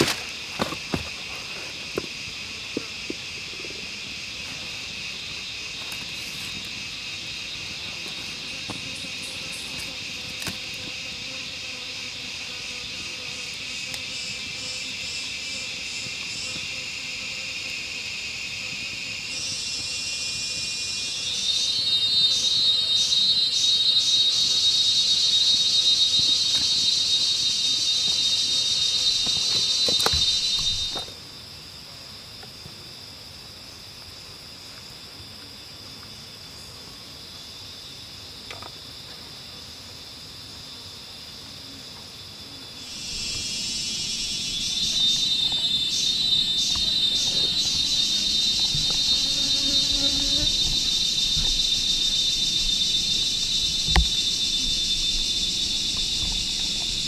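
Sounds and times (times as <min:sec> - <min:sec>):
cicadas buzzing: 0:00.0 - 0:57.0.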